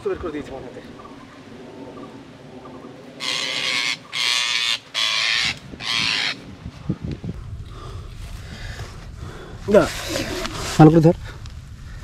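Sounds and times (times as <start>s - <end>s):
parakeet screeching: 3.2s - 6.4s.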